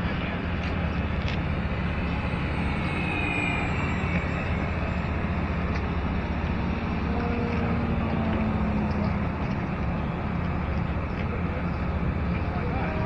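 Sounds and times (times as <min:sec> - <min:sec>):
rushing background: 0:00.0 - 0:11.1
model plane electric motors whine: 0:00.8 - 0:09.4.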